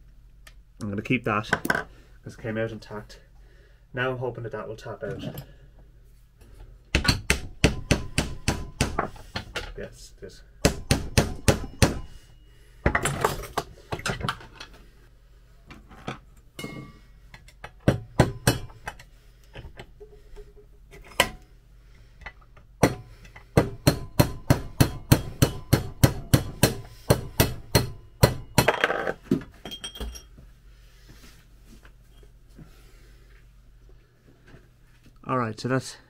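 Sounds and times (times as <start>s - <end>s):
hammer striking metal: 7.0s - 9.1s, 10.6s - 12.2s, 16.6s - 17.0s, 17.8s - 18.9s, 22.8s - 28.8s.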